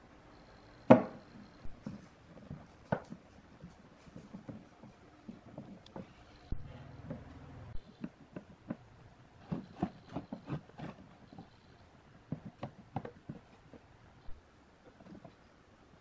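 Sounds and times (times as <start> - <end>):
low hum: 4.7 - 8.0.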